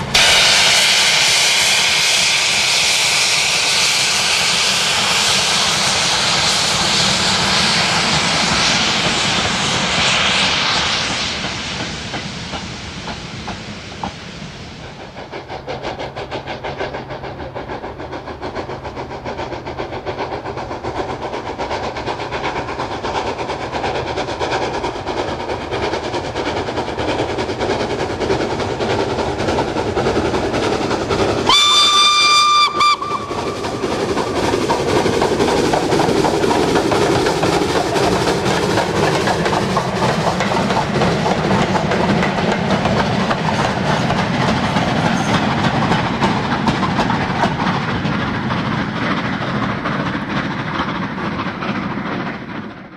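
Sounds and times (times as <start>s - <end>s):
steam locomotive running: 0.0s - 52.9s
steam whistle blast: 0.2s - 4.1s, 31.5s - 33.5s
wagons clickety-clack: 15.4s - 52.9s.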